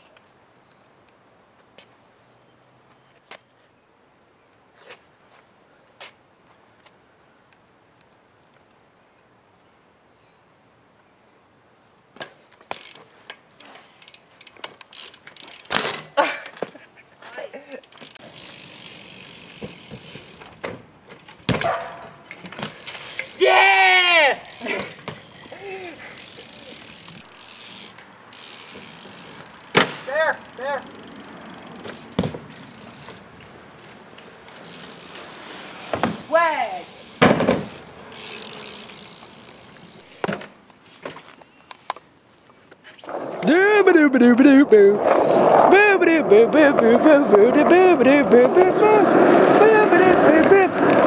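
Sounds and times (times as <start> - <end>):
bike hub ratchet clicking: 12.7 - 13.0, 13.6 - 15.9, 17.7 - 20.7, 22.6 - 23.4, 24.4 - 33.2, 34.6 - 40.1
bike knocks and rattles: 14.5 - 16.8, 17.9 - 23.4, 24.5 - 33.3, 34.5 - 41.3
bike tyres knocking on wood: 21.4 - 21.8, 32.1 - 33.2, 35.9 - 36.3, 37.1 - 37.8.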